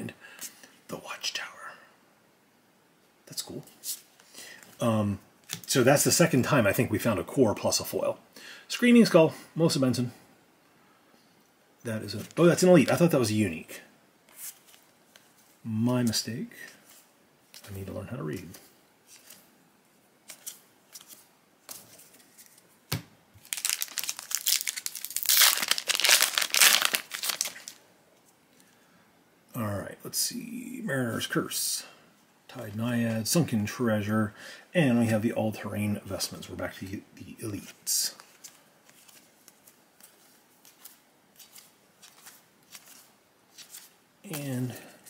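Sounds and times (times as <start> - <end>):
cards flipping: 14.3 - 15.5, 18.4 - 19.5, 20.2 - 27.8, 38.2 - 44.5
foil wrapper tearing and crinkling: 23.4 - 27.8.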